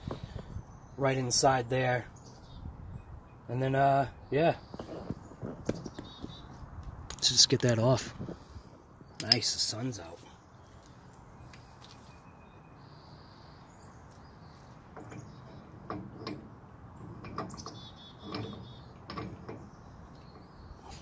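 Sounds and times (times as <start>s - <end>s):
faint bird chirps: 10.3s - 15.8s, 17.5s - 19.0s
metal clicks and clanks: 14.9s - 20.5s.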